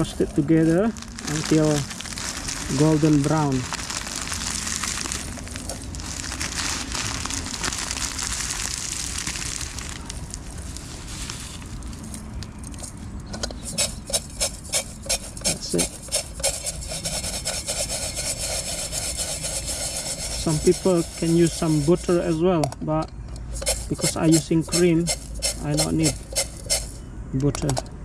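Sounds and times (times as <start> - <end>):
dry noodles crushed crackly rustling: 0.0 - 22.4.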